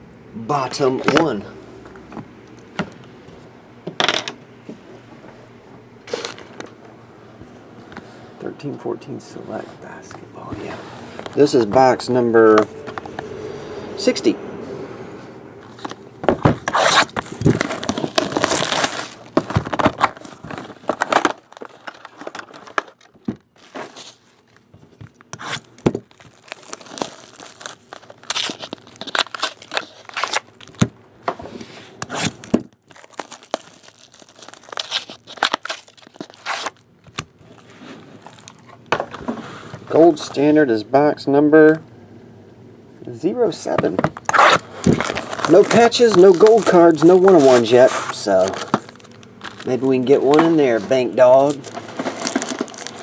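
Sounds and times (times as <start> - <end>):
card packs handled: 9.5 - 13.2, 15.6 - 31.0, 32.0 - 40.4, 43.7 - 53.0
plastic shrink-wrap tearing: 16.6 - 30.9, 32.0 - 38.7, 44.2 - 53.0.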